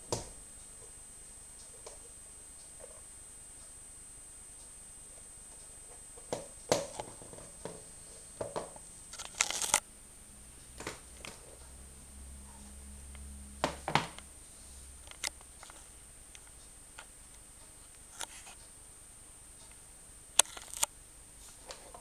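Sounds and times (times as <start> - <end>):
boots knocking on wooden floor: 13.6 - 14.2.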